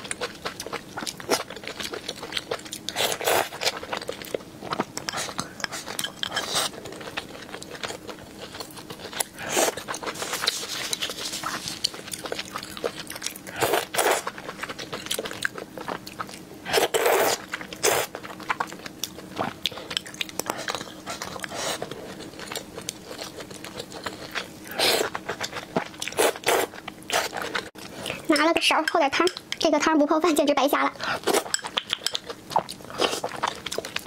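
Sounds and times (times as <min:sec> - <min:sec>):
wet chewing and mouth clicks: 0:00.0 - 0:28.4, 0:31.1 - 0:34.0
slurping noodles: 0:16.7 - 0:18.1.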